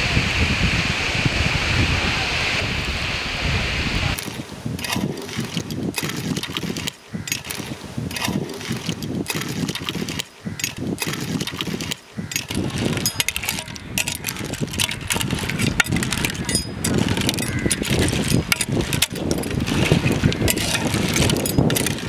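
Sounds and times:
clam shells clattering: 0:04.2 - 0:22.0
ladle scraping metal pot: 0:04.2 - 0:22.0.

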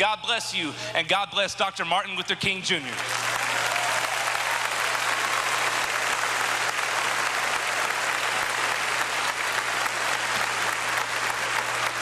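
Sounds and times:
crowd applauding: 0:02.9 - 0:12.0.

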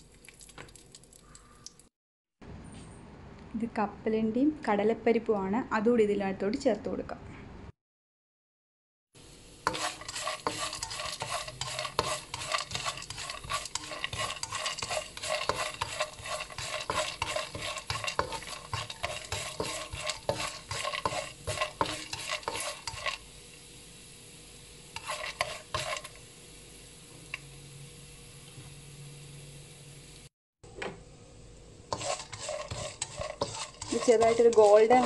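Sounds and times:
oil sizzling: 0:00.0 - 0:01.9, 0:09.2 - 0:30.3, 0:31.6 - 0:35.0
spatula stirring in a pan: 0:09.6 - 0:23.4, 0:24.9 - 0:26.2, 0:31.9 - 0:35.0.

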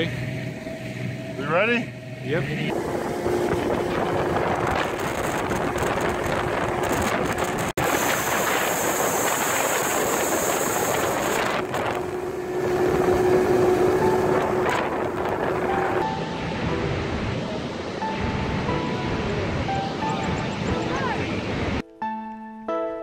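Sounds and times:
hull cutting through water: 0:00.0 - 0:16.0
outboard motor hum: 0:00.0 - 0:16.0
wind on microphone: 0:02.7 - 0:21.8.

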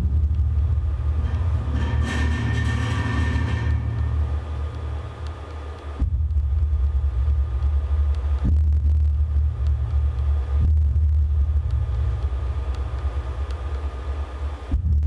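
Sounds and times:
deep steady rumble: 0:00.0 - 0:15.0.

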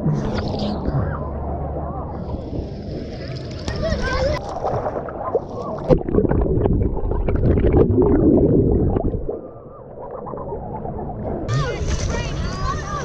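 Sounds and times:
sea water sloshing and gurgling: 0:00.0 - 0:12.9
small water splashes: 0:03.1 - 0:09.4.

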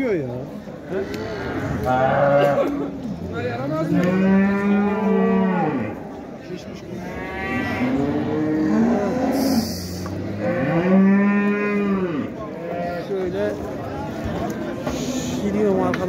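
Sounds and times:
cattle mooing: 0:03.9 - 0:06.0, 0:07.0 - 0:13.1.

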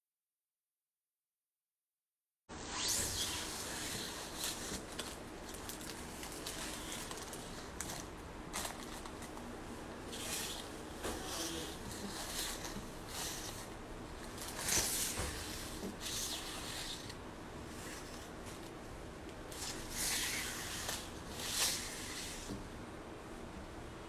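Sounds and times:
rustling and rubbing: 0:02.6 - 0:18.8, 0:19.5 - 0:22.7.

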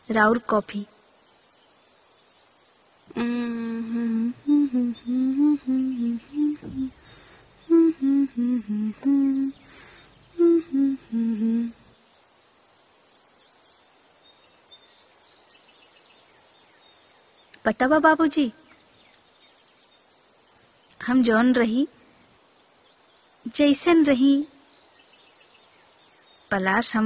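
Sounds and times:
person humming: 0:03.1 - 0:11.9.

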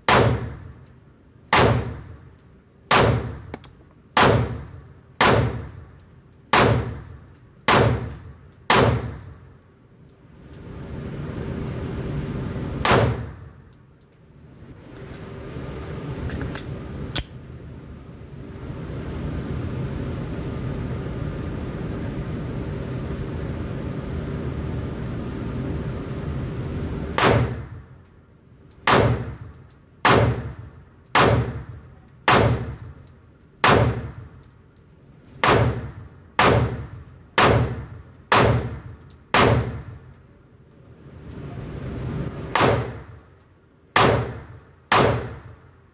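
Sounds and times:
pistol shots indoors: 0:00.0 - 0:02.2, 0:02.9 - 0:03.5, 0:04.2 - 0:05.8, 0:06.4 - 0:09.3, 0:12.8 - 0:13.5, 0:27.2 - 0:27.7, 0:28.8 - 0:32.8, 0:33.6 - 0:34.2, 0:35.4 - 0:39.9, 0:42.5 - 0:43.1, 0:43.9 - 0:45.6.

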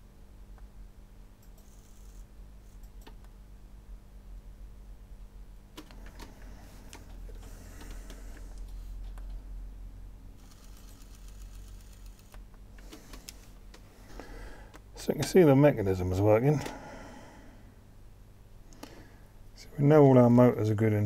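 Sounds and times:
steady low hum: 0:00.0 - 0:21.0
small motors clicking and whirring: 0:01.4 - 0:03.0, 0:10.4 - 0:13.6.

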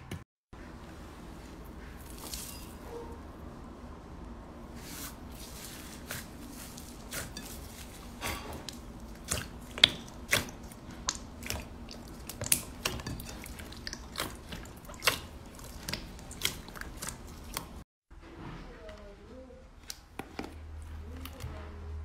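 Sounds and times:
slime squelching and popping: 0:08.7 - 0:17.8.

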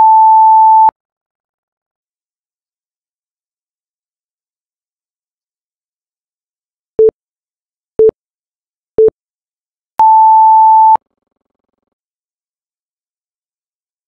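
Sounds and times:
long high timer beep: 0:00.0 - 0:00.9
short low timer beeps: 0:00.0 - 0:00.9.

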